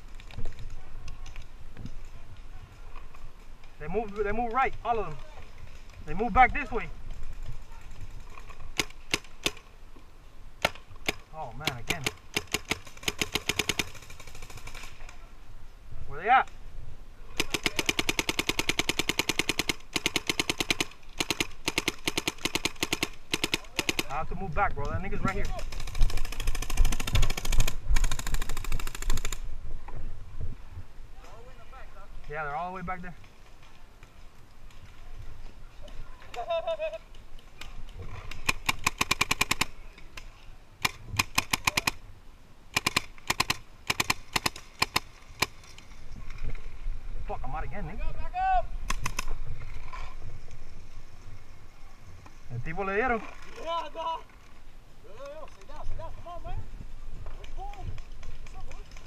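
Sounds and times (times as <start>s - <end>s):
paintball marker rapid firing: 10.6s - 14.9s, 17.4s - 24.2s, 25.5s - 29.4s, 38.3s - 39.8s, 40.8s - 42.0s, 42.7s - 45.6s.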